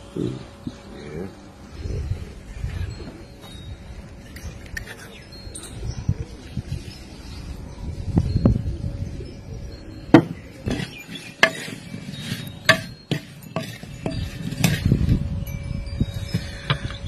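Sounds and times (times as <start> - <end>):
metal spoon clinking against bowl: 10.6 - 14.9.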